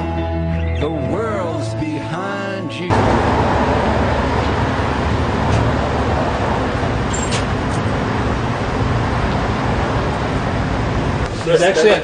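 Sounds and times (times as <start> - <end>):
rumble of street traffic: 2.8 - 12.0.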